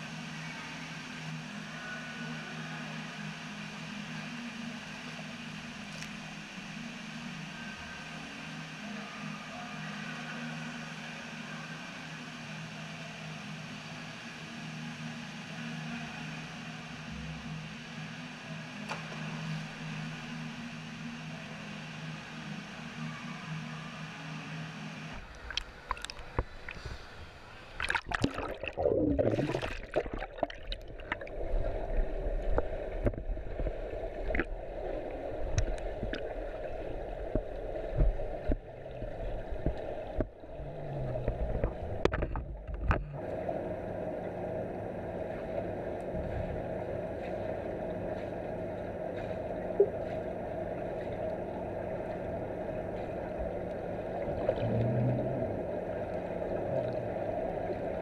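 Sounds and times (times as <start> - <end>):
muffled underwater hum: 0.0 - 58.0
water splashing: 25.1 - 42.8.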